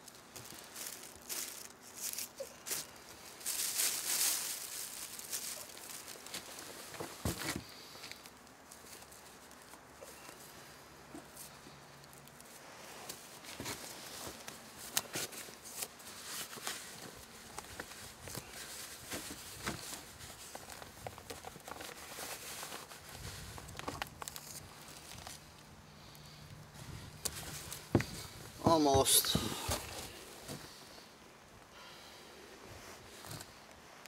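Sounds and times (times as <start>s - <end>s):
feathers rustling: 0.4s - 8.0s
small crackles and clicks: 7.9s - 25.7s.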